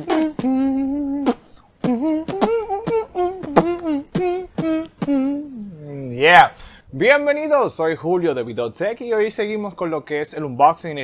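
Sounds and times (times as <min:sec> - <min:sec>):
man singing wordless tune: 0:00.0 - 0:05.6.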